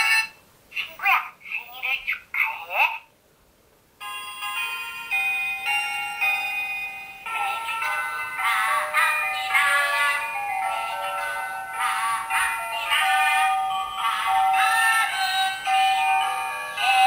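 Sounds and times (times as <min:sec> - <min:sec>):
electronic toy music: 0:04.0 - 0:17.0
synthetic children's song singing: 0:07.3 - 0:17.0.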